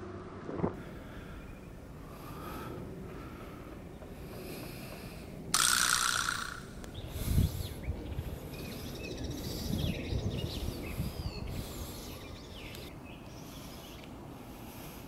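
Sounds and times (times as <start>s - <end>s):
low outdoor rumble: 0.0s - 5.5s
small birds chirping: 6.3s - 15.0s.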